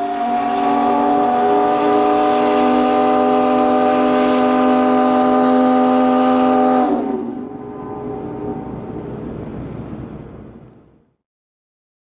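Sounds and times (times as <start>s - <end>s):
steam whistle blast: 0.0s - 9.4s.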